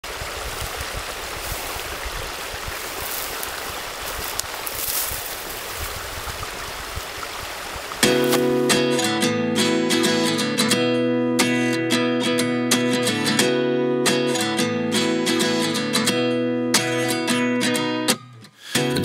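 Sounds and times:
stream water rushing: 0:00.0 - 0:09.4
strummed acoustic guitar: 0:08.0 - 0:19.0.

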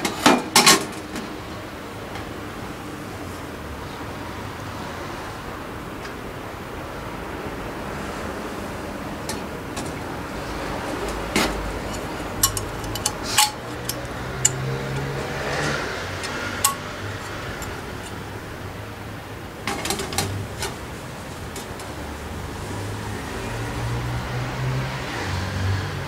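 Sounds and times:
light metal clinks and taps: 0:11.4 - 0:18.2.

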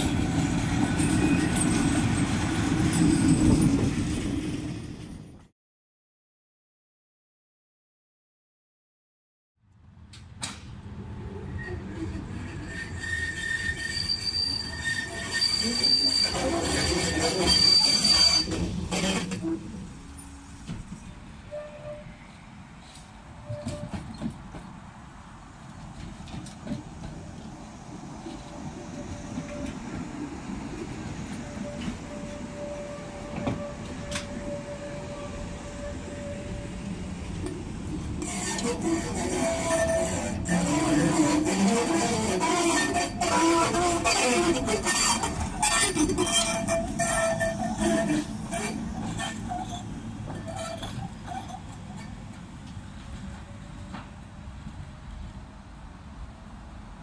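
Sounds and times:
tram rumbling on rails: 0:00.0 - 0:05.5, 0:09.8 - 0:57.0
wheels squealing: 0:11.2 - 0:20.4, 0:38.2 - 0:52.3.

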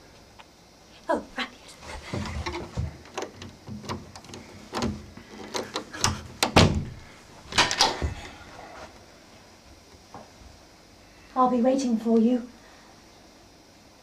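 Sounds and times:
door lock and handle clicking: 0:02.5 - 0:08.0.

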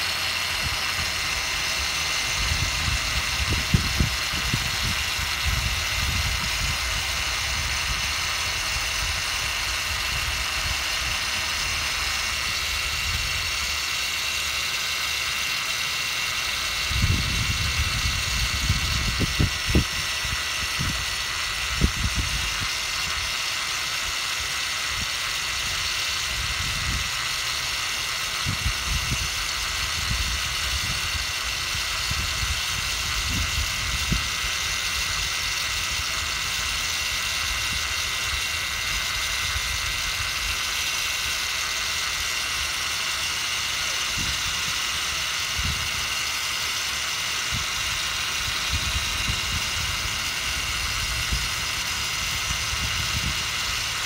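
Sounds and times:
rotary polisher whining: 0:00.0 - 0:54.0
wind buffeting microphone: 0:02.2 - 0:13.5, 0:16.9 - 0:22.7.

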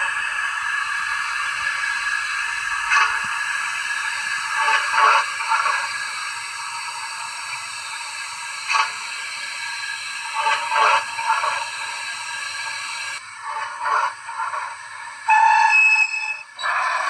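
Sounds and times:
steam hiss from small speaker: 0:00.0 - 0:17.0
steam puffs: 0:00.0 - 0:17.0.

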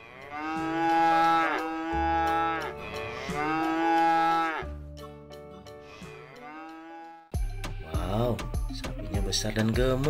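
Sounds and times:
cows mooing: 0:00.0 - 0:04.8, 0:05.8 - 0:07.4.

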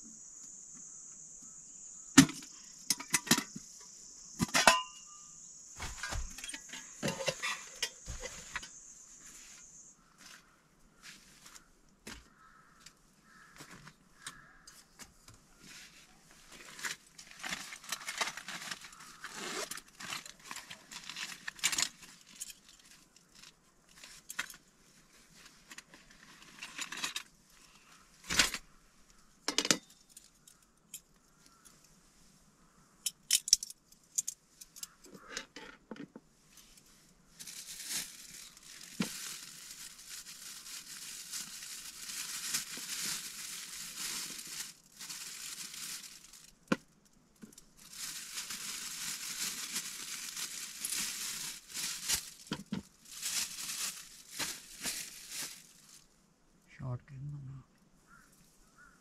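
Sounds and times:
plastic packaging crinkling: 0:16.6 - 0:24.6, 0:37.4 - 0:46.8, 0:47.4 - 0:56.1.

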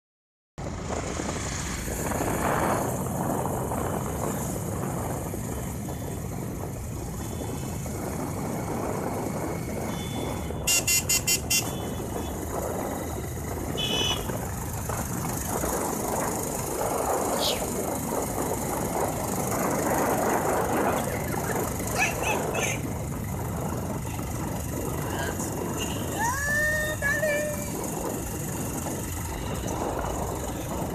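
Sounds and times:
street traffic noise: 0:00.6 - 0:30.9
high-pitched horn beeping: 0:09.8 - 0:12.5, 0:13.7 - 0:14.4.

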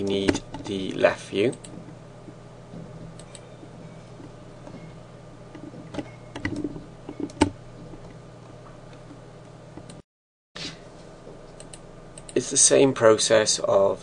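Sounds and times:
steady low hum: 0:00.0 - 0:10.0, 0:10.6 - 0:14.0
keyboard and mouse clicks: 0:01.5 - 0:02.0, 0:03.1 - 0:03.5, 0:05.5 - 0:08.2, 0:11.6 - 0:12.4.

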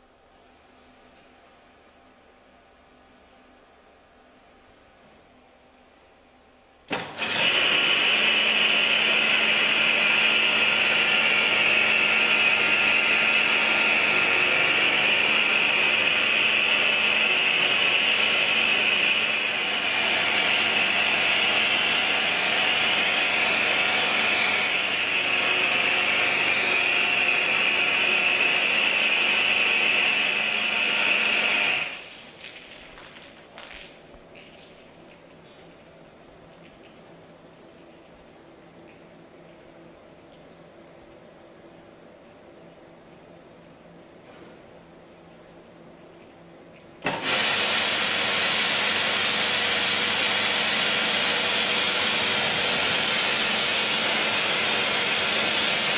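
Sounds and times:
pressure washer jet hissing: 0:47.1 - 0:55.9.

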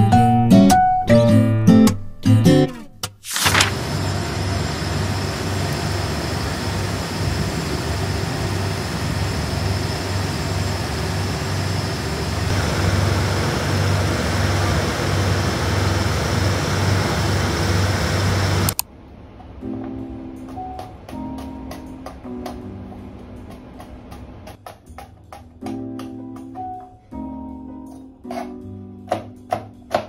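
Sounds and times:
street traffic engine rumble: 0:03.8 - 0:18.8.

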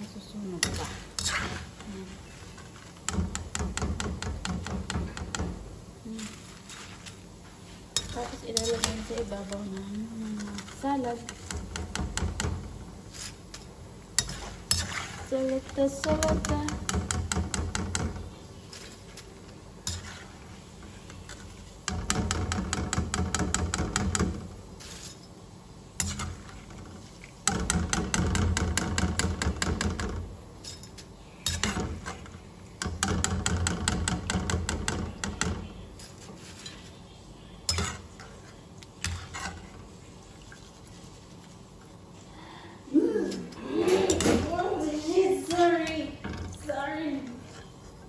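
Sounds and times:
oil sizzling: 0:00.0 - 0:42.3
metal skimmer scraping a wok: 0:00.5 - 0:03.8, 0:06.1 - 0:25.4, 0:26.0 - 0:37.0, 0:37.7 - 0:39.9.

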